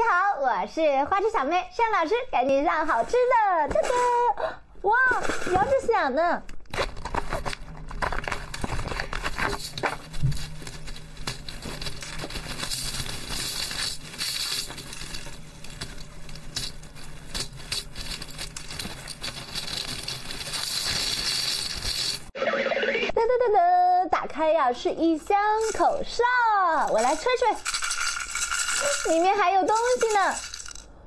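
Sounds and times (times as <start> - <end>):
packing tape pulled off box: 6.7 - 22.3
plastic bag crinkling: 6.7 - 22.3, 26.7 - 31.0.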